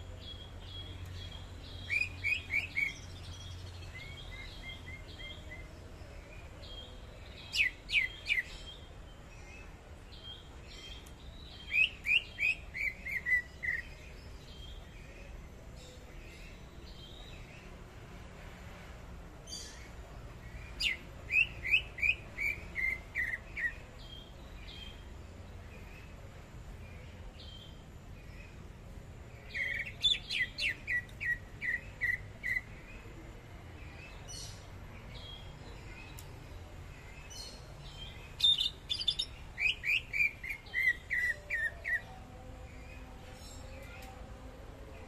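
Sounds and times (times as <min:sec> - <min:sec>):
bird whistling song: 0:01.2 - 0:05.6, 0:11.5 - 0:14.0, 0:20.8 - 0:23.8, 0:29.5 - 0:32.7, 0:38.4 - 0:42.1.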